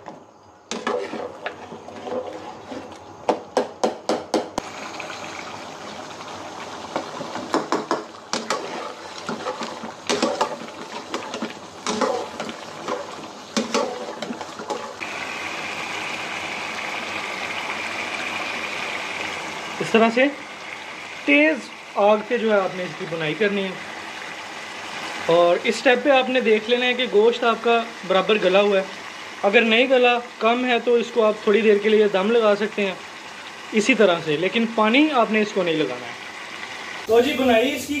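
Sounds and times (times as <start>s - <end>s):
metal spatula scraping wok: 0.7s - 3.0s, 8.3s - 15.0s
curry sizzling: 0.7s - 3.5s, 4.6s - 38.0s.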